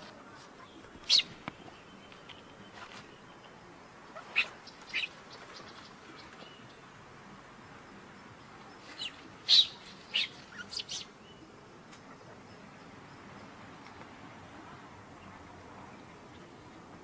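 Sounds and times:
high-pitched animal chirps: 0:04.2 - 0:05.1, 0:09.0 - 0:11.1.

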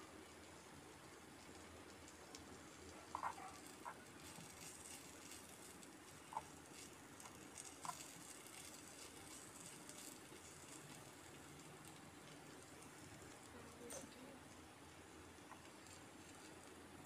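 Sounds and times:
low steady hiss: 0:00.0 - 0:17.0.

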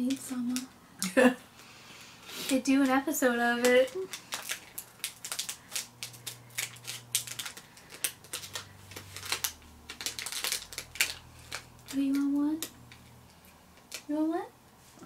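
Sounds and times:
plastic wrapper crinkling: 0:02.5 - 0:14.2.

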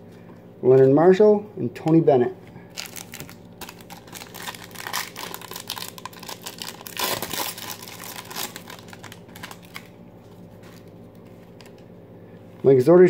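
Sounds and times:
foil wrapper crinkling and tearing: 0:02.7 - 0:11.8.

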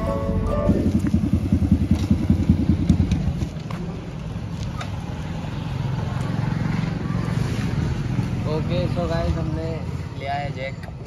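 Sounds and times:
motorcycle engine idling: 0:00.0 - 0:07.1.

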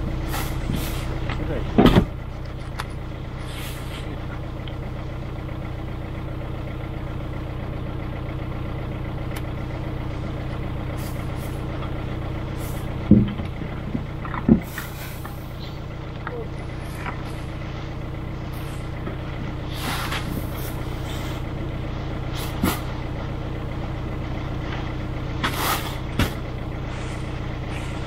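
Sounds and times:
tracked vehicle engine idling: 0:00.0 - 0:28.0
short thumps: 0:12.6 - 0:15.4.

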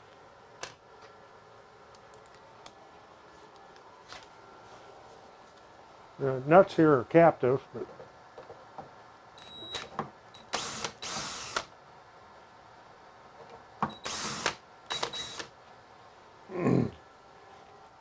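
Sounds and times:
cordless drill bursts: 0:10.4 - 0:11.7, 0:13.9 - 0:15.6.

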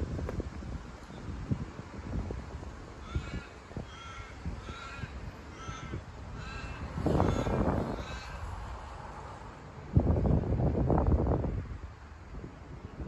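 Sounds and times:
wind rumbling on microphone: 0:00.0 - 0:13.0
crow cawing: 0:03.0 - 0:08.6.

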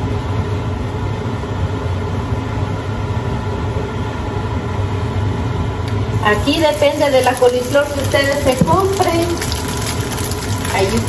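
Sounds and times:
machinery rumbling and humming: 0:00.0 - 0:11.0.

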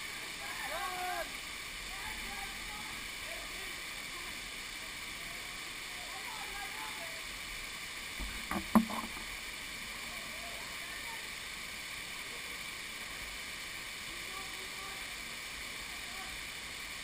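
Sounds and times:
waterfall rushing: 0:00.0 - 0:17.0
sharp knocks near microphone: 0:08.2 - 0:09.2.

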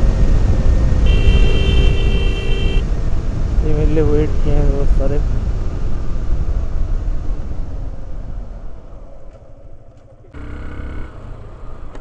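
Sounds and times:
wind noise: 0:00.0 - 0:10.0
motorcycle engine running: 0:10.0 - 0:11.6.

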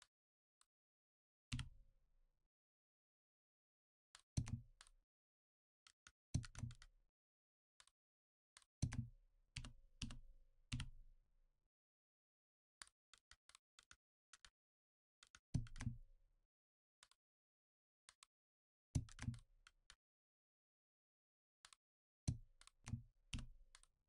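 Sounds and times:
computer keyboard clicks: 0:15.2 - 0:15.9.

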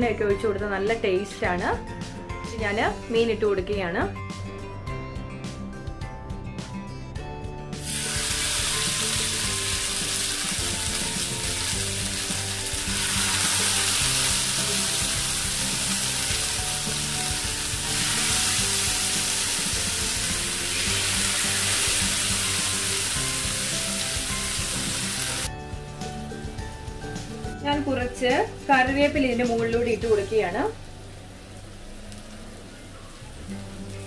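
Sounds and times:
soft background music: 0:00.0 - 0:34.0
fish sizzling in a pan: 0:07.8 - 0:25.5.

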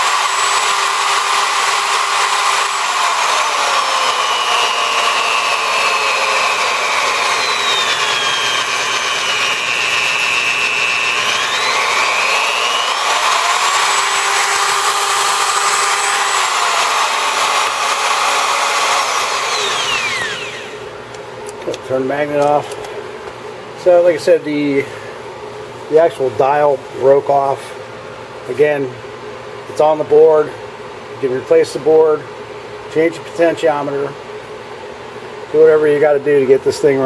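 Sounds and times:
drill motor whine changing pitch: 0:00.0 - 0:20.8.

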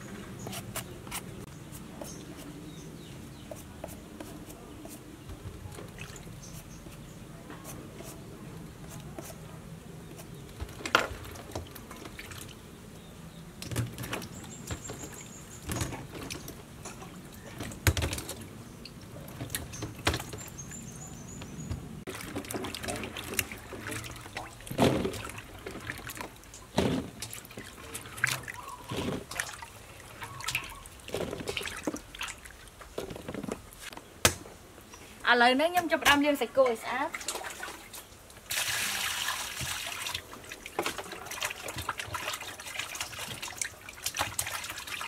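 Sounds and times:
water sloshing and dripping: 0:05.2 - 0:07.0, 0:10.3 - 0:33.9, 0:36.6 - 0:45.0.

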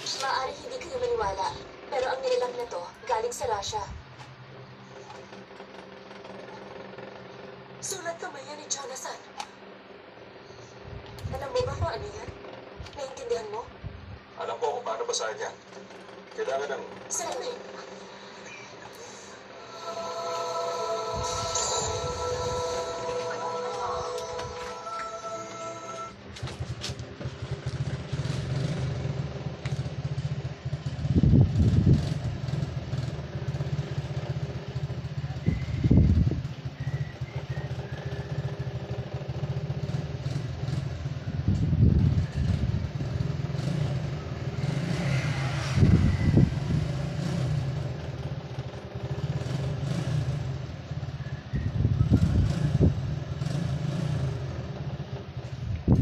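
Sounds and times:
traffic rumble: 0:00.0 - 0:56.0
vehicles passing: 0:00.0 - 0:56.0.

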